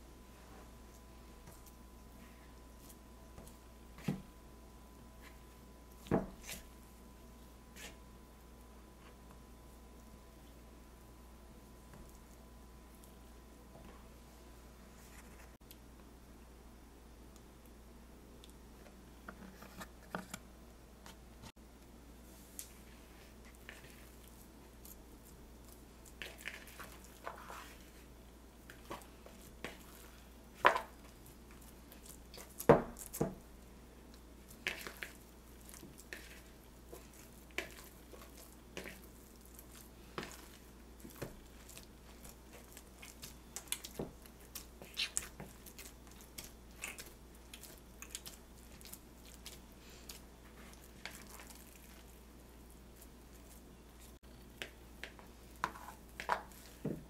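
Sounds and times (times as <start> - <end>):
dough squelching: 22.5 - 57.0.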